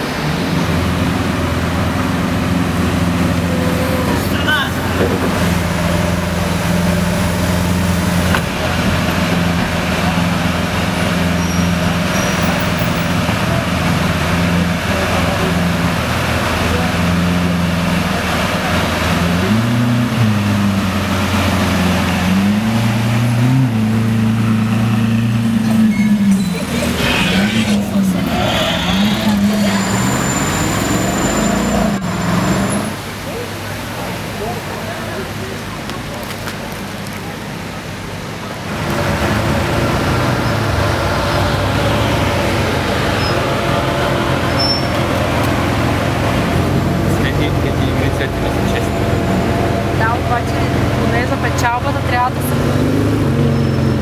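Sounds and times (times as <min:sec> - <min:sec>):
car engine driving off: 0:00.0 - 0:37.4, 0:38.7 - 0:54.0
car engine idling: 0:37.1 - 0:52.4.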